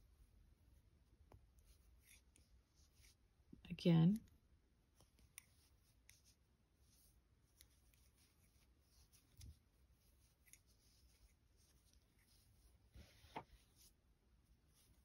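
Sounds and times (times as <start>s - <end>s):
crochet hook scratches: 1.6s - 3.2s, 5.0s - 14.0s.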